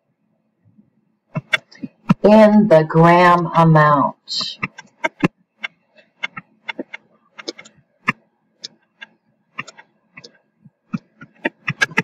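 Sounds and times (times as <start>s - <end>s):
stylus clicking on tablet screen: 4.6s - 12.0s.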